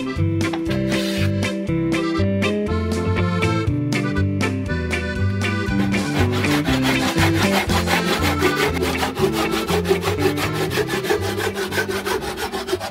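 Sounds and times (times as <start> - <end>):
background guitar music: 0.0 - 12.9
hand saw cutting wood: 5.4 - 12.9.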